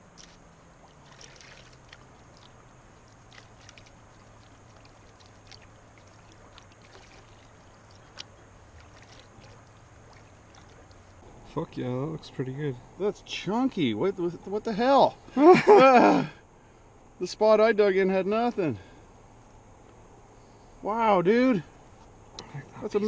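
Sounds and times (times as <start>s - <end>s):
water sloshing in pan: 0.9s - 11.2s.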